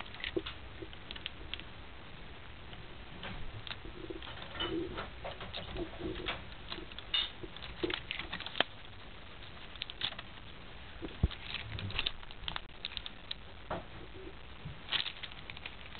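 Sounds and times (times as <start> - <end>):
cat paws tapping and scratching: 3.2 - 13.8, 14.6 - 15.9.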